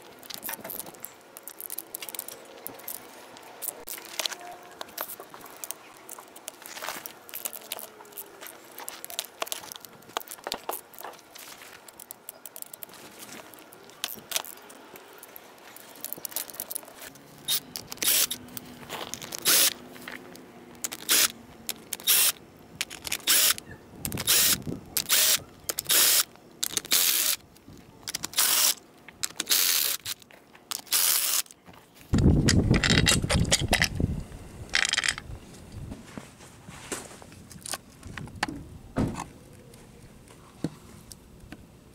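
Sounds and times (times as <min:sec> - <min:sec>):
hand tools clicking and scraping: 0:00.0 - 0:27.4
cordless drill in short spurts: 0:17.5 - 0:18.4.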